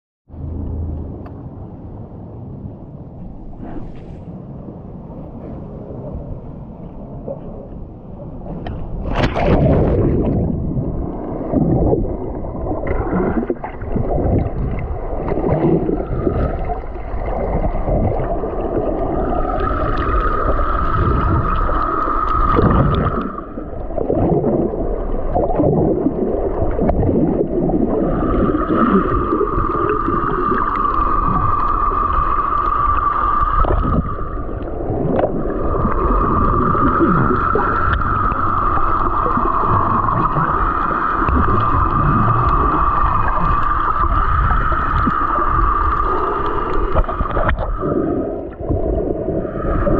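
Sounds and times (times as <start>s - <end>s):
muffled underwater water movement: 0.3s - 49.9s
splash into water: 9.0s - 10.5s.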